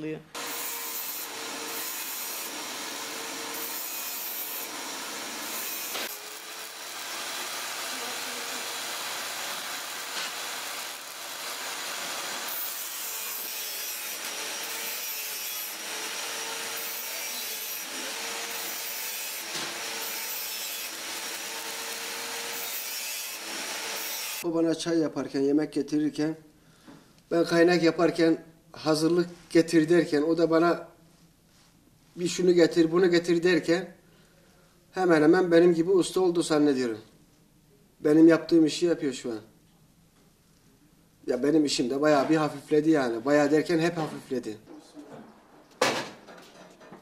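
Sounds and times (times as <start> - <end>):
angle grinder grinding steel: 0.4 - 24.4.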